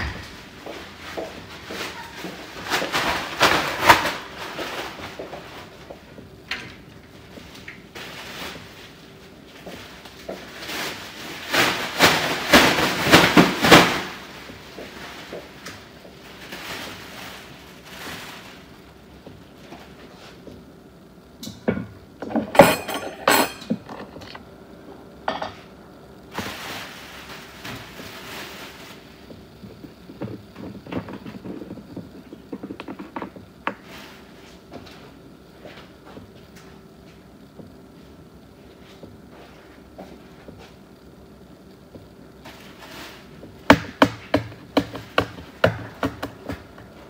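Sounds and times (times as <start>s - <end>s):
dishes and utensils clinking: 22.2s - 24.4s.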